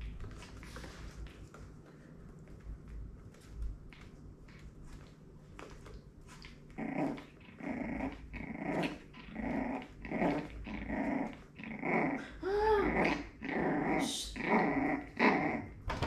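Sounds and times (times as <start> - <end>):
dog growling: 6.7 - 15.8.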